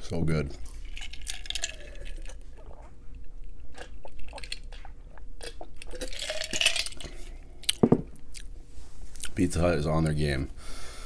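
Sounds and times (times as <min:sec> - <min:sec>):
person gulping a drink: 0:01.0 - 0:03.0, 0:03.7 - 0:08.5
breathy exhale: 0:10.6 - 0:11.0.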